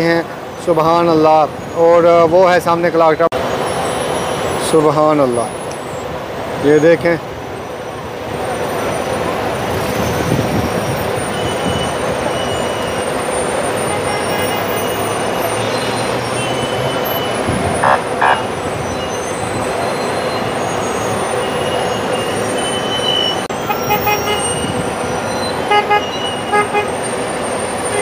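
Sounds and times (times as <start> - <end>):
heavy road traffic: 0.0 - 28.0
car horn toots: 13.9 - 14.8, 17.8 - 18.5, 23.6 - 24.7, 25.6 - 27.0.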